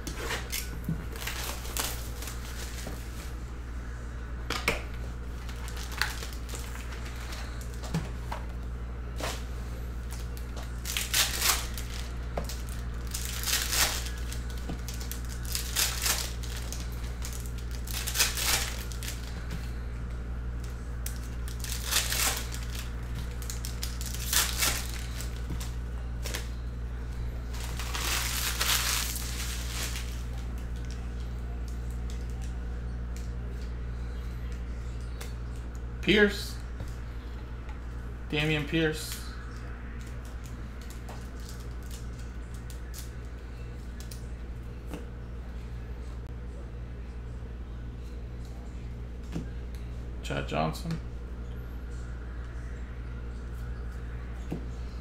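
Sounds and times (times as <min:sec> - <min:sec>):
foil wrappers tearing and crinkling: 0:00.0 - 0:03.2, 0:05.3 - 0:07.8, 0:10.0 - 0:19.4, 0:21.0 - 0:26.5, 0:27.4 - 0:31.0, 0:40.0 - 0:43.1
steady low hum: 0:00.0 - 0:55.0.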